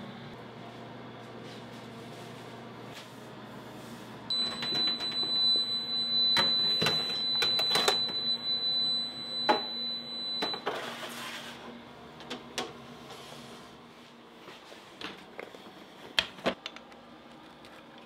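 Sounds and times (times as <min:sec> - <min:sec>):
high-pitched electronic alarm tone: 0:04.3 - 0:10.6.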